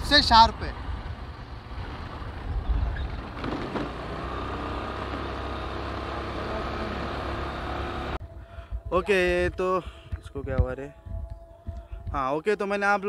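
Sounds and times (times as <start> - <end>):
wind rumble on microphone: 0.0 - 3.8
motorbike engine running: 0.0 - 9.4.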